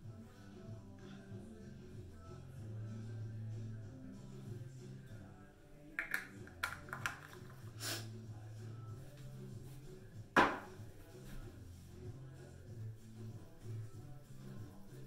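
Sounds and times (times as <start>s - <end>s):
faint background music: 0.0s - 15.0s
small objects clicking and knocking: 6.0s - 7.6s
sharp knock: 10.4s - 10.7s.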